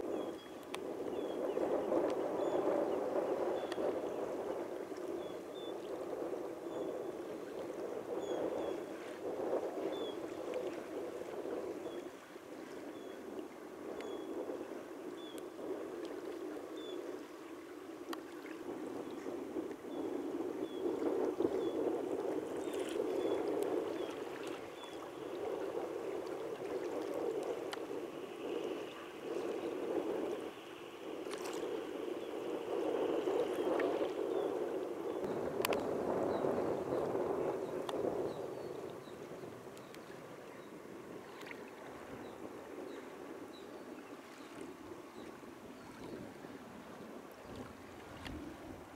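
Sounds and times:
waves lapping against kayak hull: 8.6 - 48.9.

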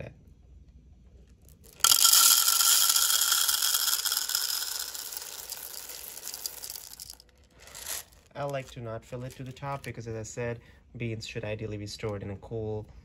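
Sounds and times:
coffee beans rattling into plastic: 1.5 - 9.9.

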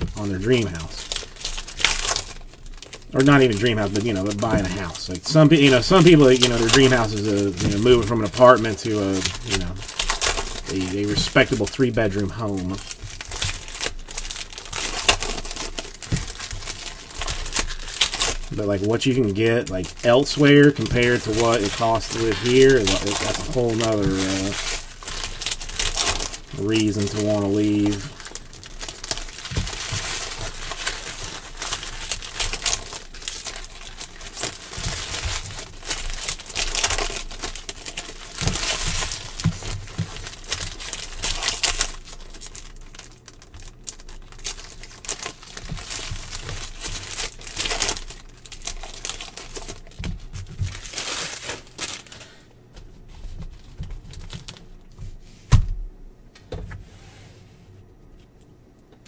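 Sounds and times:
foil packs crinkling: 0.0 - 55.1
cards being handled: 16.1 - 24.9.

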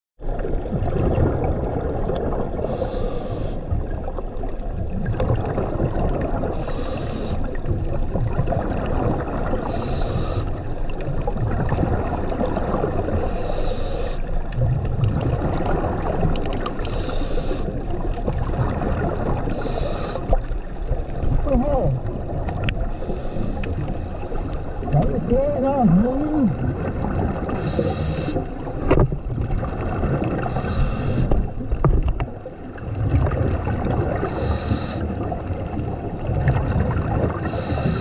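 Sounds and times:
low rumble of water: 0.2 - 38.0
regulator breathing hiss: 2.6 - 3.6, 6.5 - 7.5, 9.7 - 10.7, 13.2 - 14.3, 16.8 - 17.8, 19.5 - 20.4, 22.9 - 24.7, 27.6 - 28.5, 30.5 - 31.4, 34.2 - 35.2, 37.4 - 38.0.

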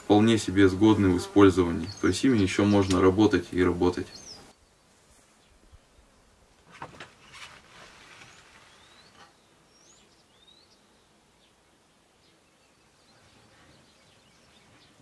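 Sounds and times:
small birds chirping: 0.0 - 15.0
soft knocks or rustles: 6.6 - 9.3.

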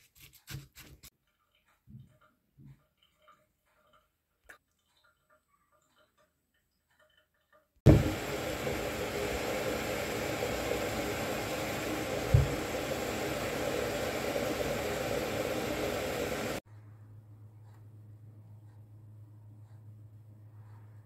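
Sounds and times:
steady rushing noise: 7.9 - 16.6.

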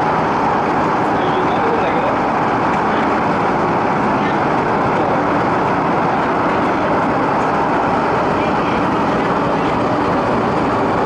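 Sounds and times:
train carriage running rumble: 0.0 - 11.0.

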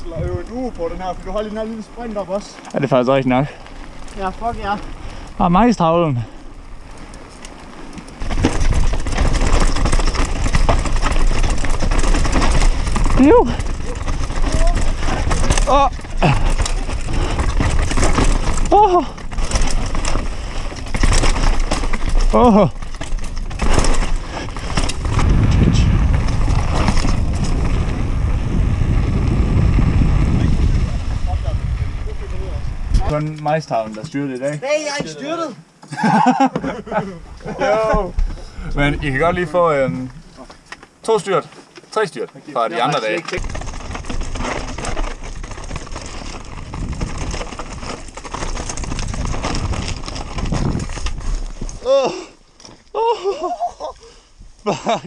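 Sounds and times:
wind buffeting microphone: 0.0 - 2.4, 3.6 - 33.3, 43.4 - 52.0
mountain bike rattling on rocks: 0.0 - 35.4, 36.0 - 54.2
tyres rolling over loose dirt: 0.0 - 55.0.

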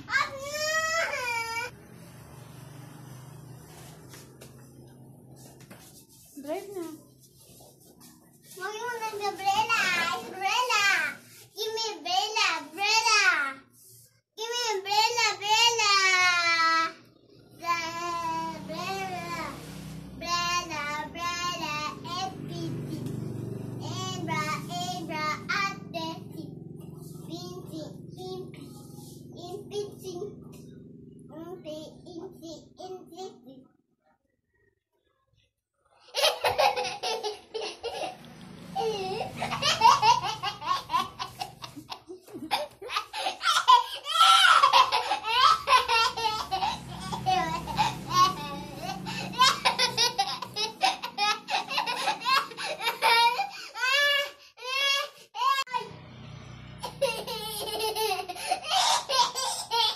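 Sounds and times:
young child laughing: 36.0 - 38.2, 38.8 - 53.9, 56.8 - 59.9.

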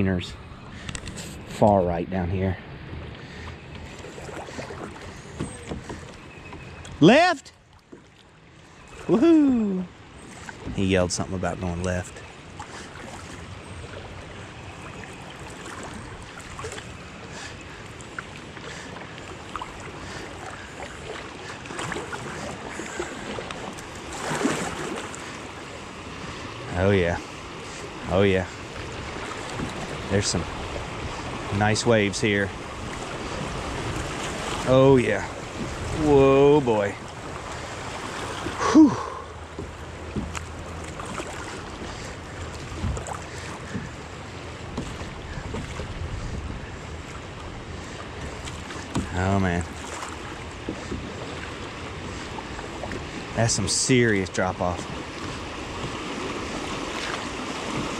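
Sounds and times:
river current rushing: 0.0 - 7.5, 8.4 - 57.9
paddle splashes and knocks: 3.0 - 9.2, 10.2 - 11.0, 12.1 - 31.6, 32.5 - 57.9
faint small splashes: 14.7 - 25.5, 37.0 - 44.1, 47.9 - 53.3
wind buffeting microphone: 42.4 - 49.1.

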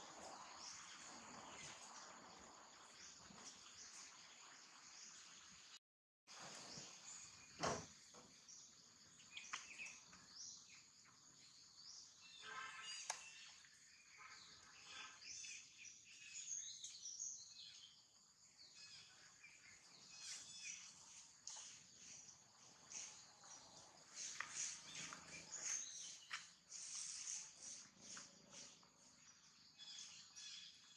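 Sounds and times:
bird chirps: 8.4 - 30.9
high-pitched hiss: 24.1 - 28.8.

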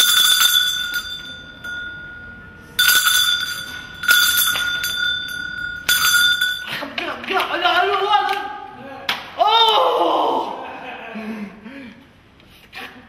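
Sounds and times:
bell ringing: 0.0 - 6.8.

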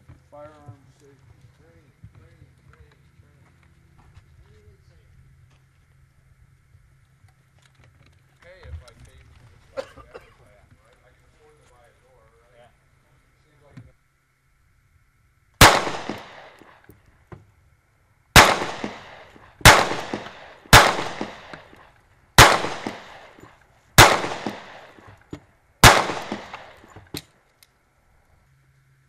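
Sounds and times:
gunshots echoing: 15.6 - 16.9, 18.4 - 25.2, 25.8 - 27.2.

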